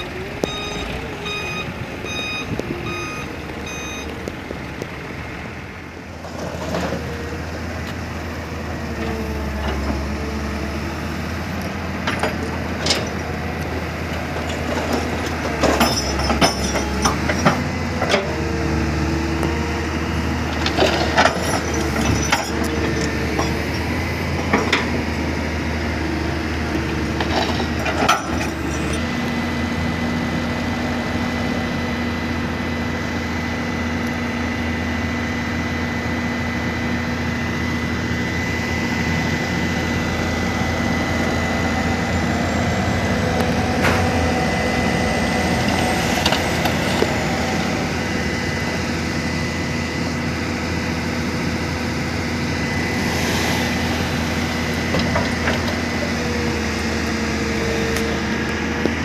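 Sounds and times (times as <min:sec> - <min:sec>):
diesel truck engine running: 0:00.0 - 0:59.0.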